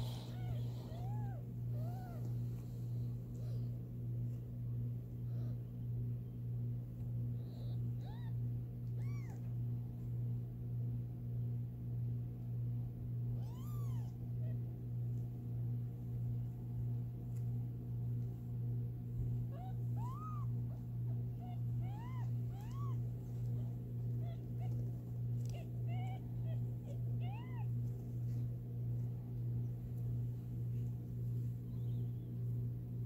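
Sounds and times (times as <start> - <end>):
kittens mewing: 0.0 - 3.8, 7.4 - 9.5, 13.4 - 14.8, 19.0 - 31.0
steady low hum: 0.0 - 33.0.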